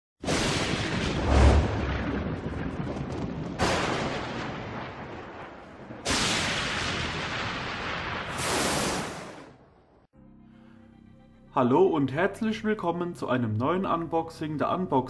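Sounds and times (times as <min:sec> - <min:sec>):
explosion-like booms: 0:00.2 - 0:09.8.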